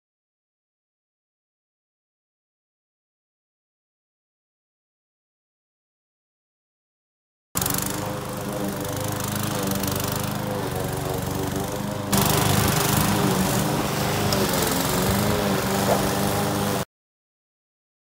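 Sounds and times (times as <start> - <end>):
lawn mower engine running: 7.6 - 16.8.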